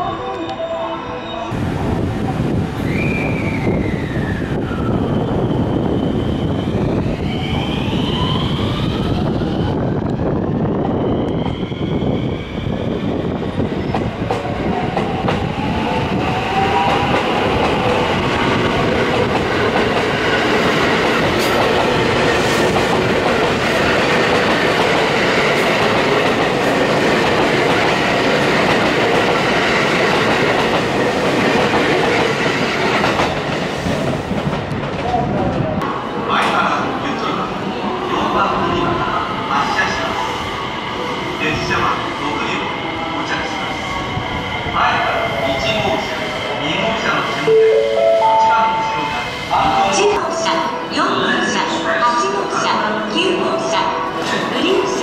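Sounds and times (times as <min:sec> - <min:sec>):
train wheels on rails: 0:01.5 - 0:37.5.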